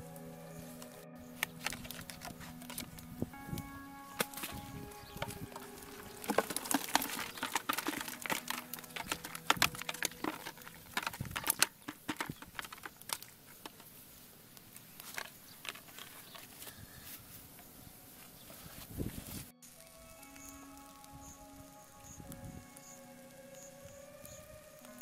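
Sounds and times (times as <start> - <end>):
fish flapping: 1.4 - 3.4, 4.1 - 13.8
bamboo trap knocking on plastic bucket: 4.1 - 13.2.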